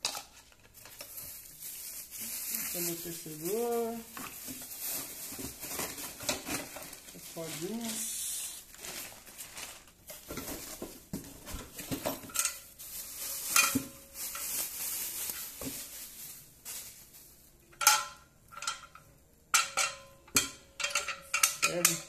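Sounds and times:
plastic wrapping crinkling: 0:00.0 - 0:17.8
plastic and metal parts clinking: 0:17.7 - 0:22.0.

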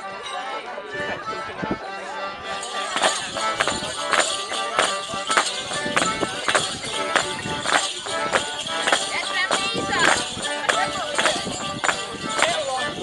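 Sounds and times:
accordion dance tune: 0:00.0 - 0:13.0
feet striking paving: 0:02.9 - 0:12.6.

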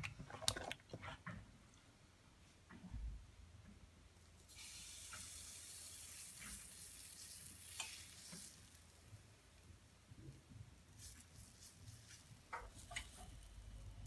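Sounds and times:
batter sizzling in frying pan: 0:04.5 - 0:09.2.

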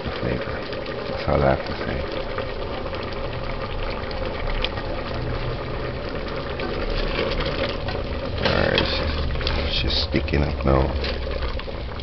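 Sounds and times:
thick stew bubbling in a pot: 0:00.0 - 0:12.0
ladle stirring stew: 0:02.6 - 0:11.9.

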